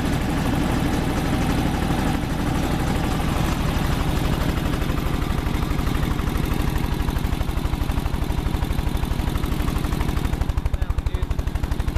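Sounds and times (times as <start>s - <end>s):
air compressor pump running: 0.0s - 11.9s
engine idling: 0.0s - 11.9s.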